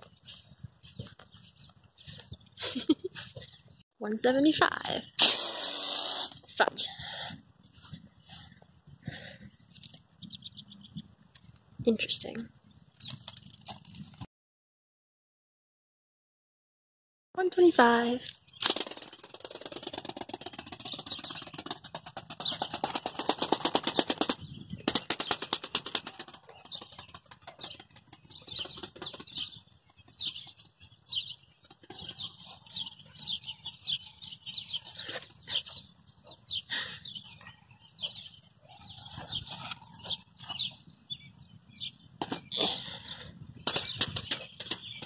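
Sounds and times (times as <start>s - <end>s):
ornithopter wings fluttering: 18.6s - 31.0s.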